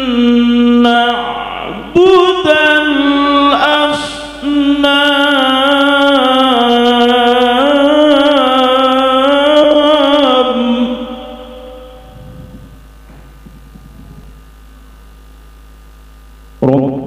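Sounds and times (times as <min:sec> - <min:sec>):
man reciting melodically: 0:00.0 - 0:12.1.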